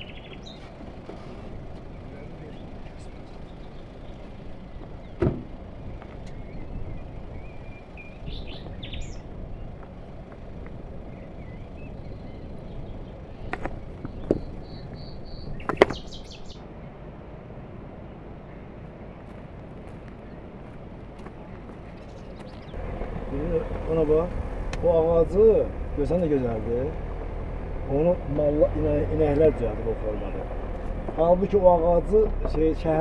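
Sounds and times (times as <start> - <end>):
birds chirping: 0.0 - 17.0, 18.0 - 33.0
stones knocking together: 13.5 - 14.6, 15.6 - 16.1.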